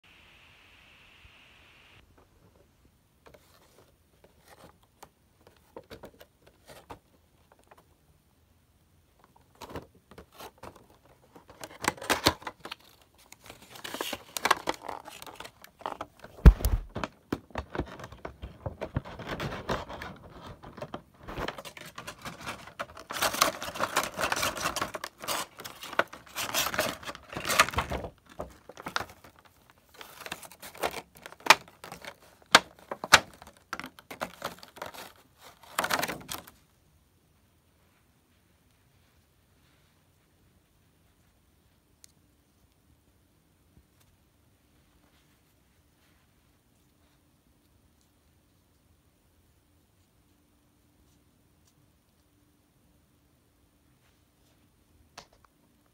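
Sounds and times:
cardboard and plastic crinkling: 9.4 - 36.6.

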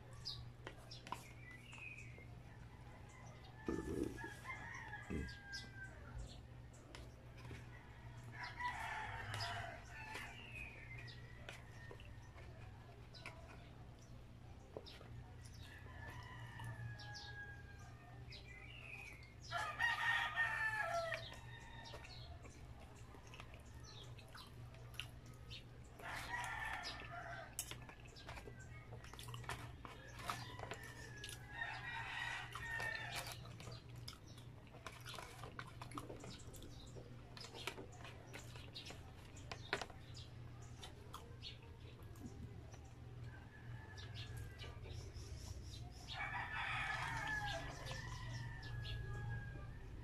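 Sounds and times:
rooster crowing: 3.4 - 6.0, 46.2 - 50.0.

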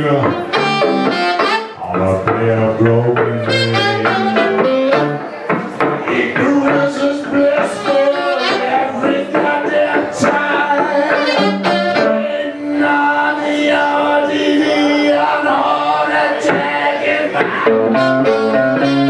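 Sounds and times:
saxophone melody: 0.0 - 5.5, 6.4 - 13.3, 17.6 - 19.0
electric guitar accompaniment: 0.0 - 19.0.

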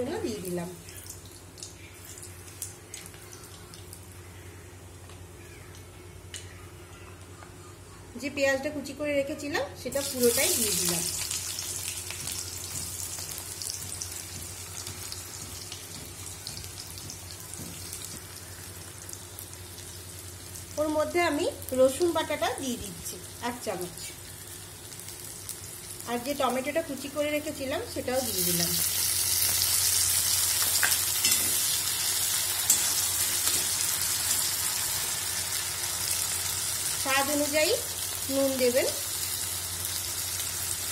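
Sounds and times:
onions sizzling in oil: 9.9 - 40.9.

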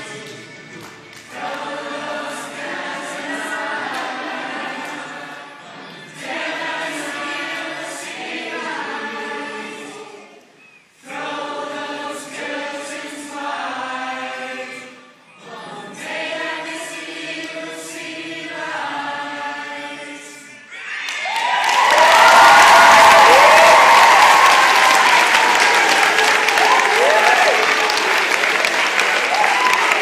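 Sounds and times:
group singing: 0.0 - 20.7.

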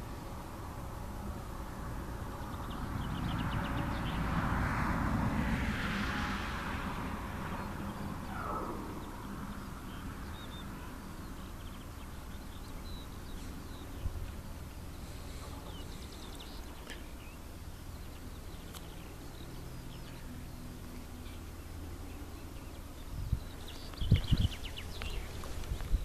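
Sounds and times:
passing aircraft noise: 0.0 - 26.0
wind turbine humming: 0.0 - 26.0
faint bird chirps: 8.2 - 11.0.

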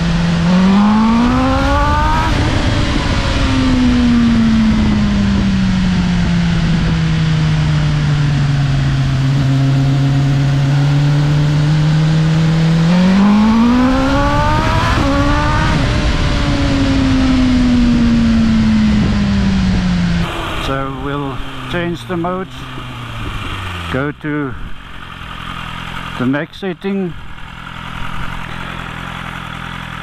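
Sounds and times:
wind rushing over microphone: 0.0 - 23.9
motorcycle engine revving: 0.0 - 30.0.

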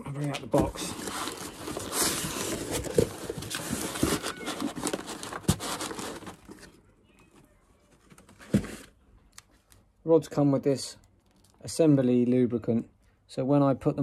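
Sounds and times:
paper rustling in cardboard box: 0.5 - 6.8.

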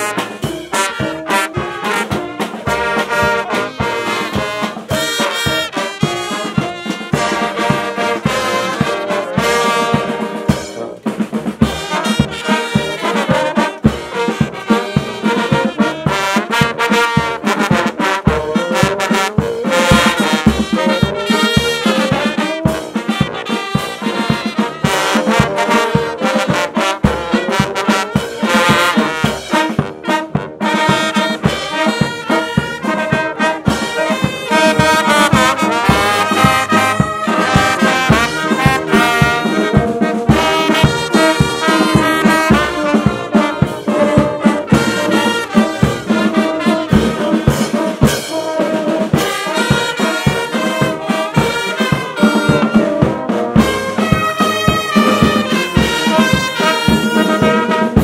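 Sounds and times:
brass band playing: 0.0 - 58.0.

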